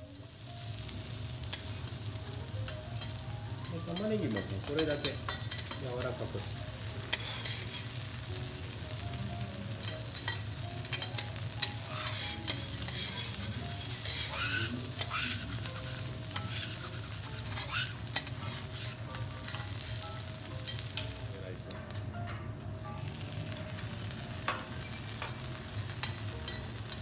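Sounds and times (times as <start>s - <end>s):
steak sizzling on a griddle: 0.0s - 22.0s, 22.7s - 27.0s
metal spatulas clicking and scraping: 7.0s - 7.9s, 9.9s - 19.8s.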